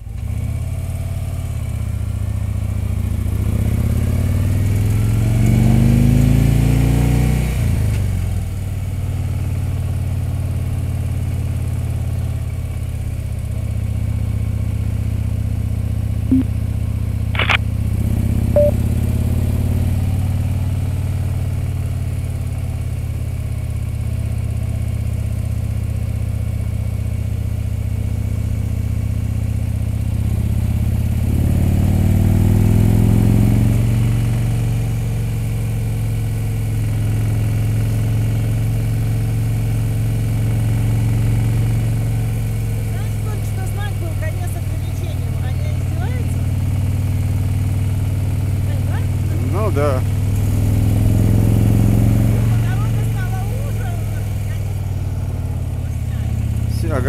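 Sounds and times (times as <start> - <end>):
motorcycle engine running: 0.0 - 57.0
short click: 17.4 - 17.6
brief high chirp: 18.6 - 18.8.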